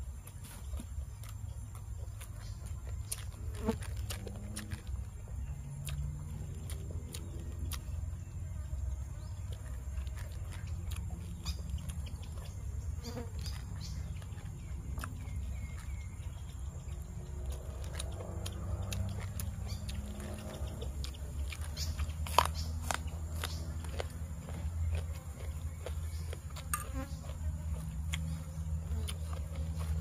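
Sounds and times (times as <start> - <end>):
leaves being torn and chewed: 0.0 - 30.0
flies buzzing: 2.4 - 5.1, 12.4 - 14.3, 17.8 - 30.0.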